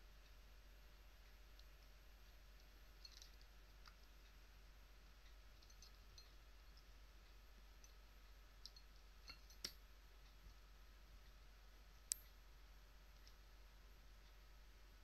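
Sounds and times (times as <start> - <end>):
faint clicks and taps: 1.2 - 4.4, 8.6 - 10.6, 11.3 - 12.4, 13.1 - 13.4.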